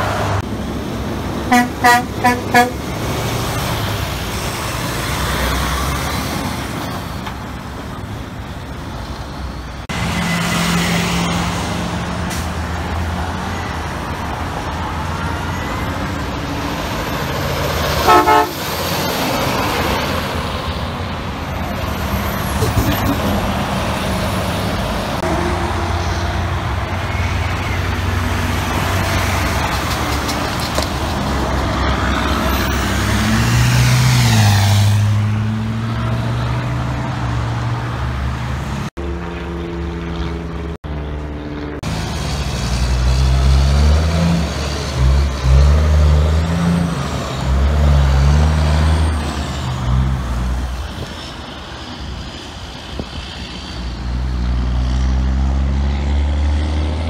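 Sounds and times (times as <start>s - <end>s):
truck passing with tyre noise: 0.0s - 57.0s
diesel truck engine shifting gears: 41.8s - 51.1s.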